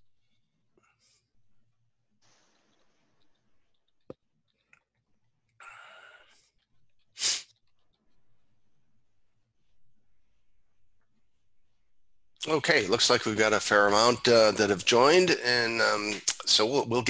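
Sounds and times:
breathy exhale: 5.6 - 6.4.

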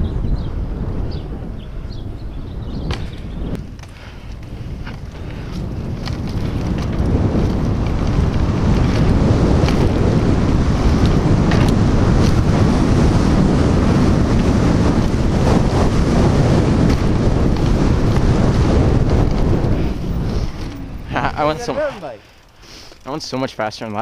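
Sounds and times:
wind buffeting microphone: 0.0 - 22.3
bike clicks and knocks: 2.8 - 13.5, 14.1 - 21.2.

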